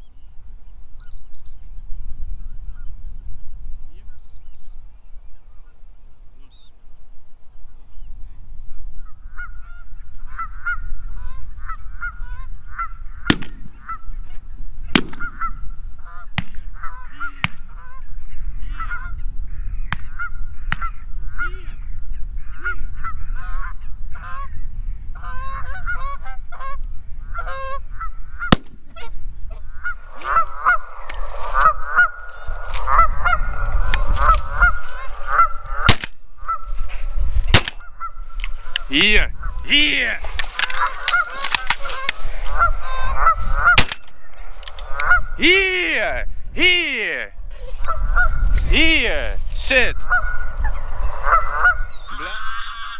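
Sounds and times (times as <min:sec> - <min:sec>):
geese honking: 0:09.0 - 0:14.3, 0:14.9 - 0:24.6, 0:25.2 - 0:46.0, 0:47.6 - 0:49.2, 0:49.9 - 0:52.9.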